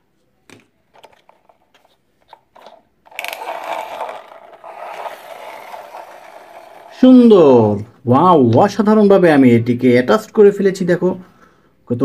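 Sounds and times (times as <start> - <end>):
plastic parts clicking: 0.5 - 6.9
plastic toy scraping: 1.0 - 7.3.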